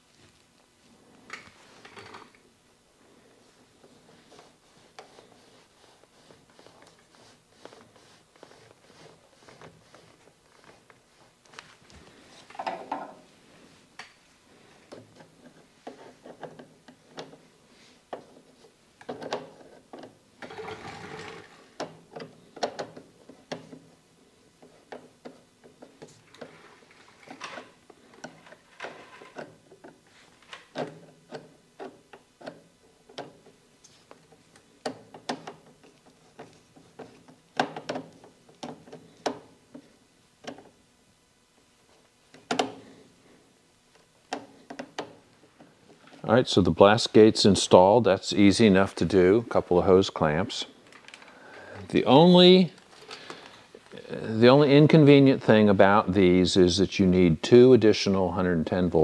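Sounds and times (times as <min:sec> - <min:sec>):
plastic hose rustling and scraping: 0:03.1 - 0:23.9, 0:24.6 - 0:40.6.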